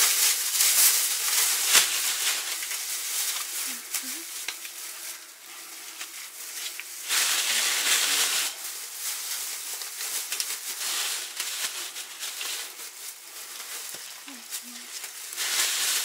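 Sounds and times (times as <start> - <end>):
plastic bags crinkling: 0.0 - 16.0.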